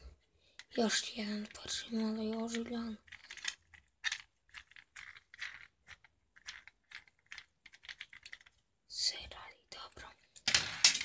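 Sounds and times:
toy car clicking and rattling: 0.6 - 8.6, 10.4 - 11.0.

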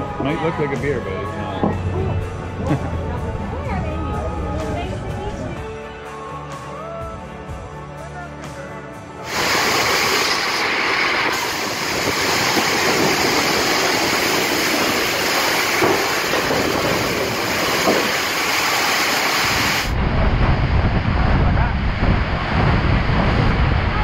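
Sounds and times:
faint music: 0.0 - 9.2
torrential rain hissing: 9.2 - 24.0
wind buffeting microphone: 11.2 - 18.6, 19.3 - 24.0.

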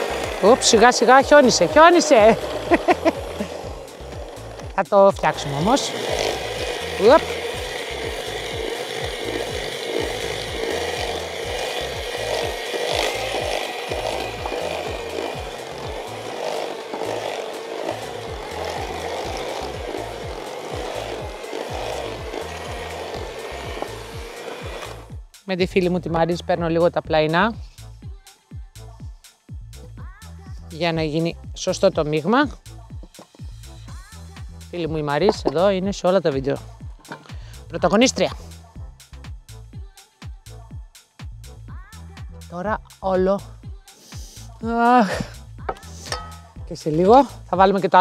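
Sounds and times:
beaters churning batter: 0.0 - 25.1
electric hand mixer whining: 0.0 - 25.3, 33.0 - 38.5, 44.9 - 48.0.

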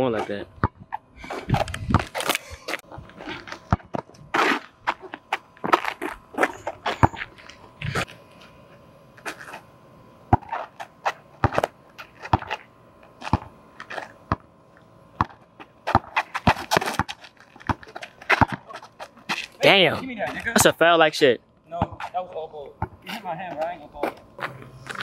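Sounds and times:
basketball bouncing on asphalt: 0.6 - 0.8, 3.7 - 4.2, 4.8 - 7.4, 10.3 - 10.6, 11.4 - 14.5, 15.2 - 19.4, 21.8 - 22.1, 22.8 - 23.8.

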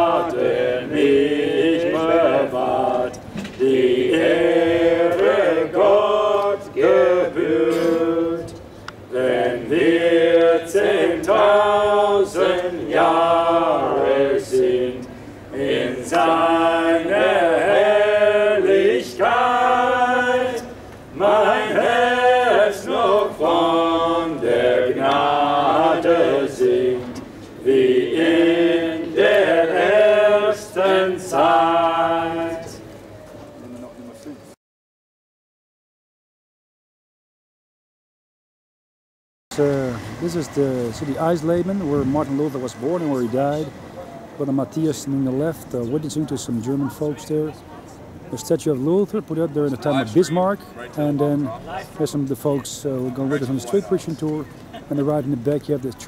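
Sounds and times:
group singing a hymn unaccompanied: 0.0 - 33.0.

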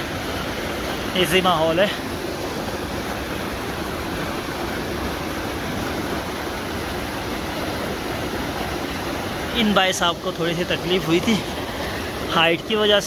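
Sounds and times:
rushing stream roar: 0.0 - 13.0.

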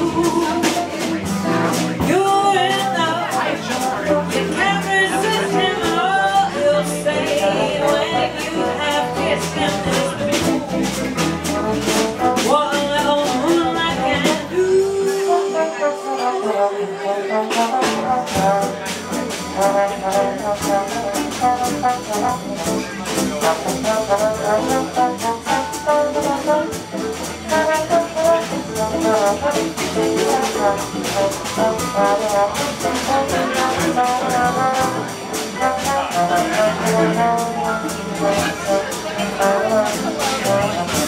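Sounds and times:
guitar: 0.0 - 16.6, 17.6 - 41.0
double bass: 0.0 - 41.0
trombone solo: 15.2 - 41.0.

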